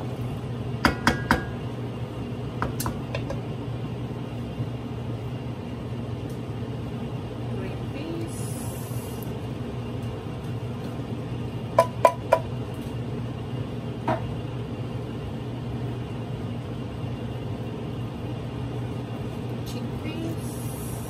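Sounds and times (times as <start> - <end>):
metallic knocks on cooking pot: 0.8 - 1.6, 11.8 - 12.5.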